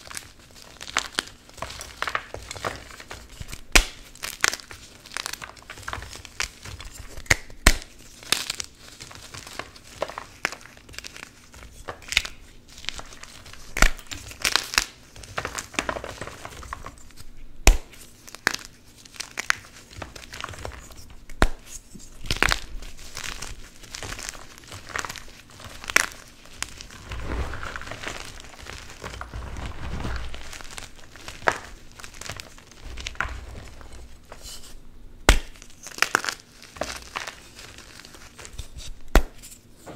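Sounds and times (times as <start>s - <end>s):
chalk blocks cracking: 0.8s - 39.6s
chalk crumbling: 18.0s - 39.7s.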